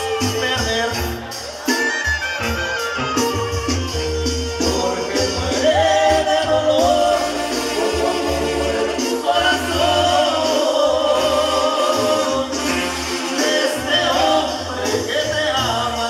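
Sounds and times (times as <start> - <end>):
live banda music: 0.0 - 16.0
person singing: 4.4 - 16.0.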